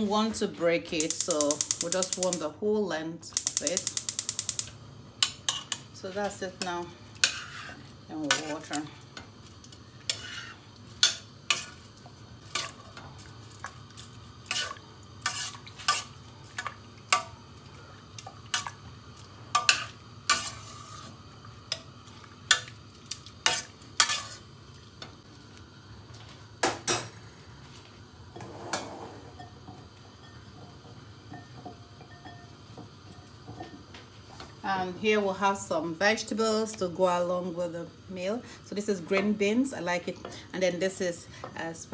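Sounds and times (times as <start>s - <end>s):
spoon clinking against metal pot: 31.3s - 32.5s.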